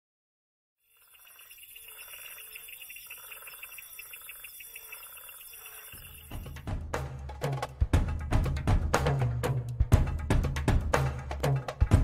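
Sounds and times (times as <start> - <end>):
pulsing animal trill chorus: 0.9 - 6.6.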